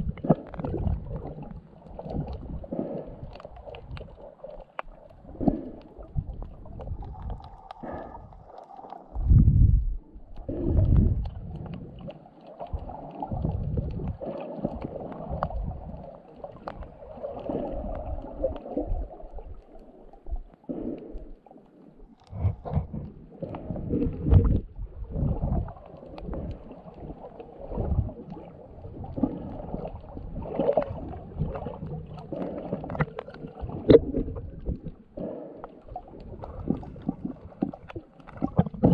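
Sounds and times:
muffled underwater sloshing: 0.0 - 38.9
low underwater thumps: 9.2 - 10.0, 22.3 - 25.7.

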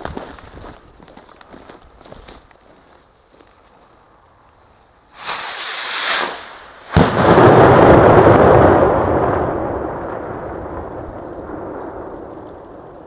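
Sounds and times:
rocket whooshing: 5.0 - 10.0
sharp firework bang: 5.1 - 9.4
rumbling echo: 5.8 - 13.0.

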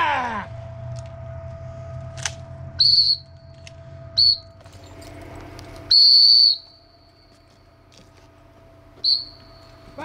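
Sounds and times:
shrill dog whistle blasts: 2.8 - 3.3, 4.2 - 4.6, 5.9 - 6.8, 9.0 - 9.5.

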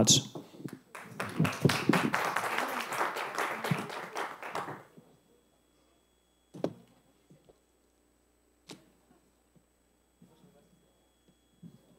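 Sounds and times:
audience applauding: 0.7 - 5.0.

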